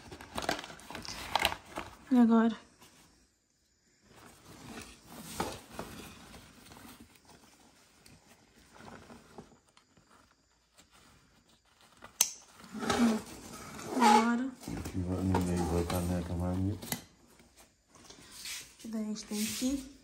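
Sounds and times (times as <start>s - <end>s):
fabric rustling: 4.0s - 16.4s.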